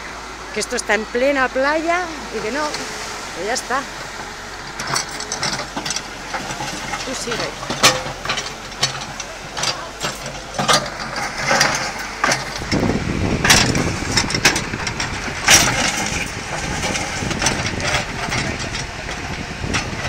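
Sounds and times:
diesel engine running: 0.0s - 20.0s
bucket scraping soil and stones: 1.8s - 20.0s
rocks knocking and clattering: 4.1s - 20.0s.

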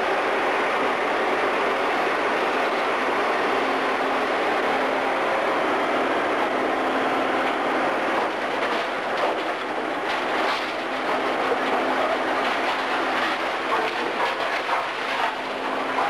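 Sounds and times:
excavator engine and hydraulics: 0.0s - 16.0s
rubble clattering: 8.1s - 16.0s
debris knocks: 8.2s - 16.0s.

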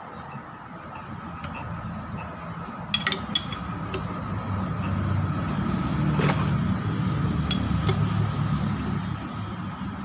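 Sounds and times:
wrench clinking on metal: 2.9s - 4.0s, 7.5s - 8.0s.

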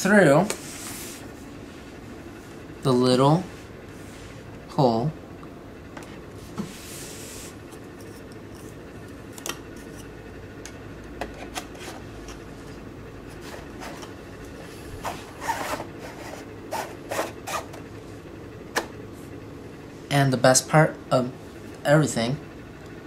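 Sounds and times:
plastic case sliding rub: 15.0s - 17.8s.

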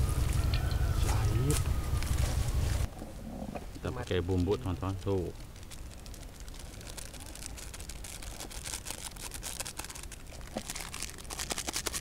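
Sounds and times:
plastic sachets crinkling: 4.0s - 12.0s.

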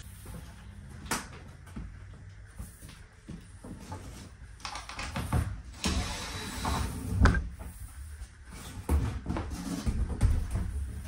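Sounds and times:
wall panel scraping and knocking: 8.5s - 11.0s.

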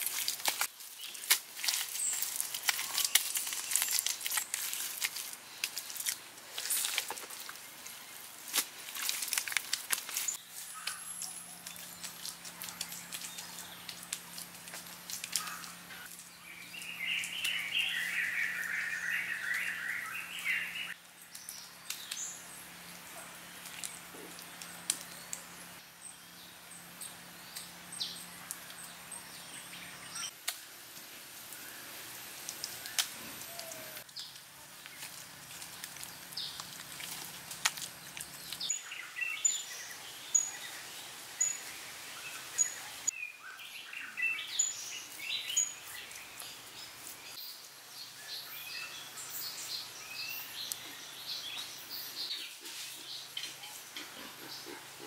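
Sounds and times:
birds calling: 10.1s - 30.4s.

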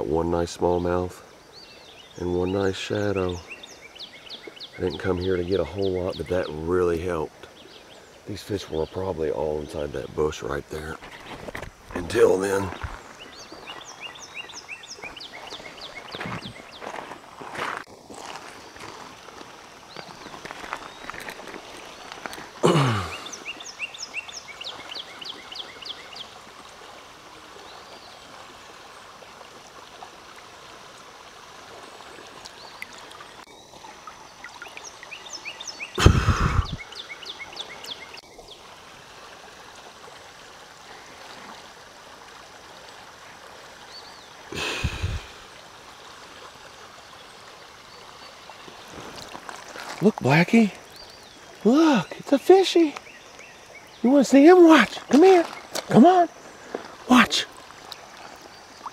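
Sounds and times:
creek water running: 0.0s - 58.9s.

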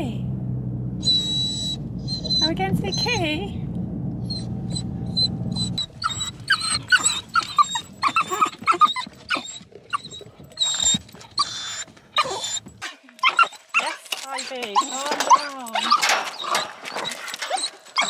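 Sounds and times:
car low rumble: 0.0s - 12.8s
dog whining and yipping: 1.0s - 3.3s, 4.2s - 18.0s.

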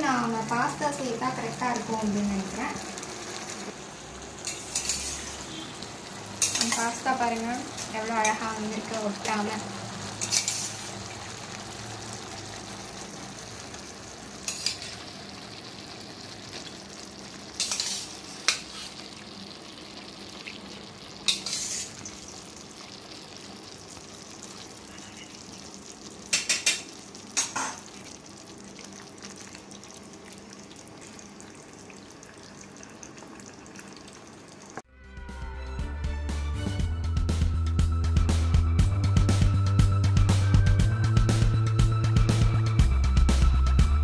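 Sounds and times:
sauce sizzling in a pan: 0.0s - 34.9s
metal spoon scraping a pot: 4.4s - 5.7s, 6.4s - 7.0s, 10.2s - 10.9s, 14.4s - 15.0s, 17.6s - 19.0s, 21.3s - 22.1s.

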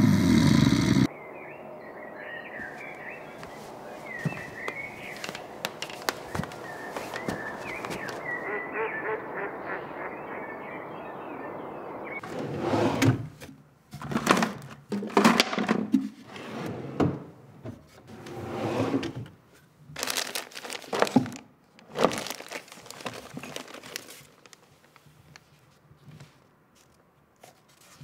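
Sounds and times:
rummaging through wooden drawer: 4.0s - 8.4s, 12.2s - 19.3s, 20.0s - 24.5s
objects knocking on wood: 4.2s - 8.2s.

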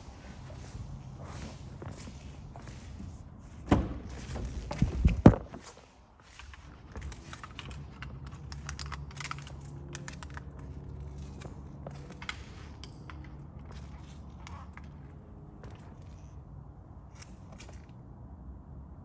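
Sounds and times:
steady low hum: 0.0s - 17.9s
handling clicks and knocks: 3.6s - 16.3s.

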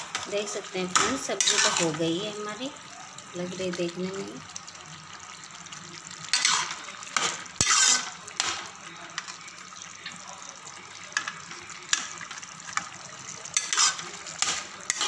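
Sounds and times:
ladle stirring curry: 7.6s - 8.5s, 13.6s - 15.0s.

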